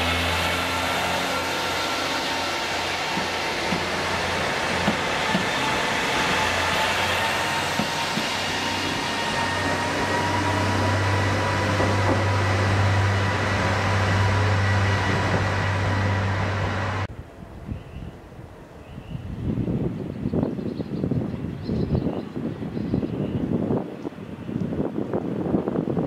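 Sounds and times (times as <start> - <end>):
diesel railcar engine hum: 0.0 - 19.8.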